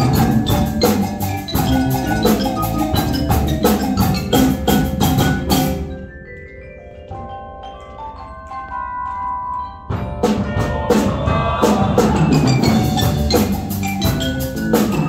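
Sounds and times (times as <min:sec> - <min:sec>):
drum strokes: 0:00.0 - 0:06.1, 0:09.8 - 0:15.0
marimbas and mallet instruments: 0:00.0 - 0:15.0.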